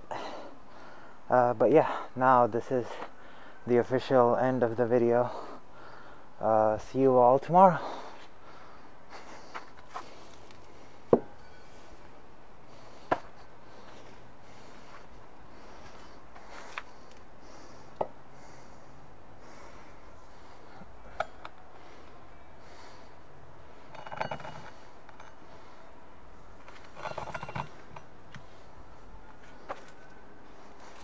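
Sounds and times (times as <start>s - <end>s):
metal clinking: 23.8s - 25.5s, 26.7s - 28.1s.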